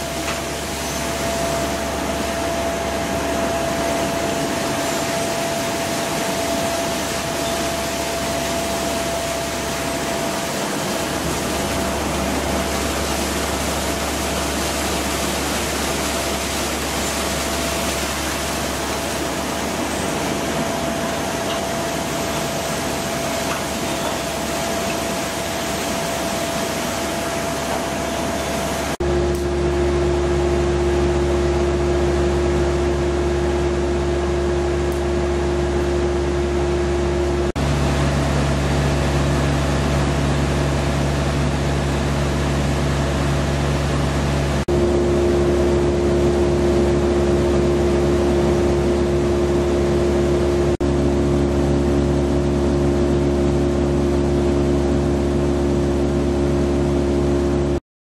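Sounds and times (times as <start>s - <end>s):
flowing pulp rushing: 0.0s - 29.0s
deep machine hum: 0.0s - 57.8s
machine whine: 0.0s - 57.8s.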